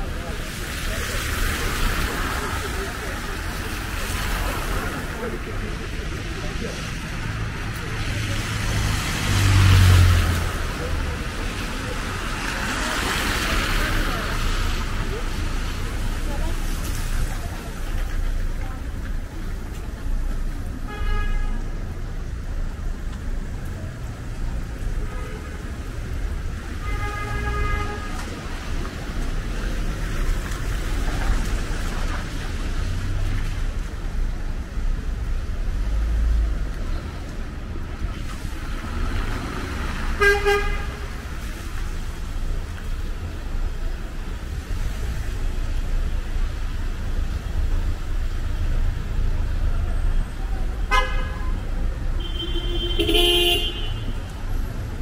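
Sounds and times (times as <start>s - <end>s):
traffic rumble: 0.0s - 55.0s
car horns tooting: 40.2s - 41.0s, 50.9s - 51.6s, 52.2s - 54.3s.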